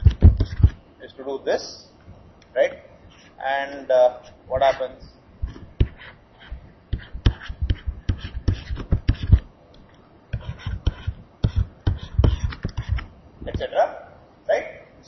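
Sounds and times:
pen scraping on paper: 0.0 - 0.8, 5.5 - 9.5, 10.3 - 13.1.

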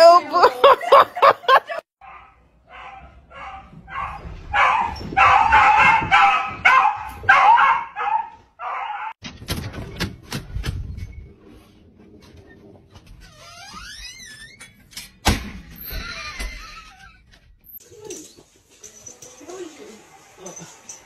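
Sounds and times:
dog barking and yelping: 2.0 - 9.2.

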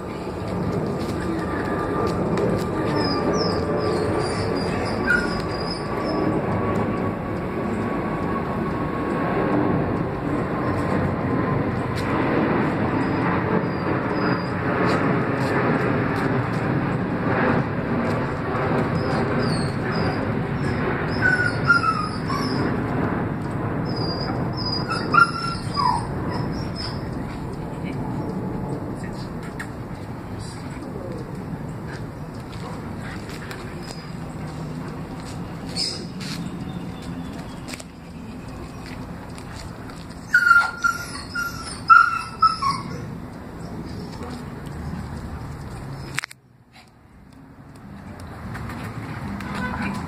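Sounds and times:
birds chirping: 35.4 - 39.2.

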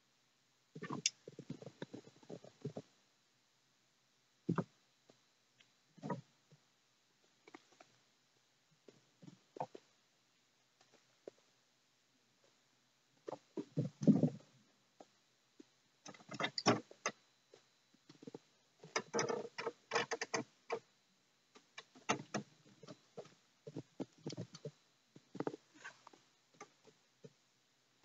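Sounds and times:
kitten paws tapping and scrabbling: 0.8 - 2.9, 21.6 - 27.4.

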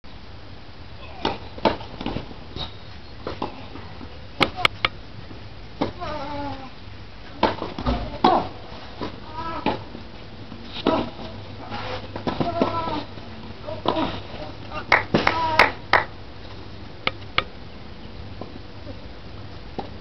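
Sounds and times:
person crying out: 12.4 - 15.8.

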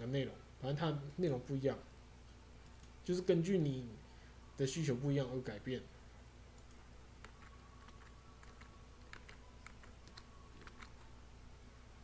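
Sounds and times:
computer keyboard keystrokes: 6.6 - 11.0.

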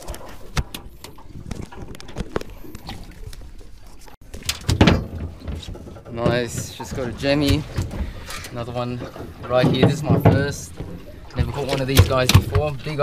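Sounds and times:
low rumble with thumps: 4.6 - 13.0.

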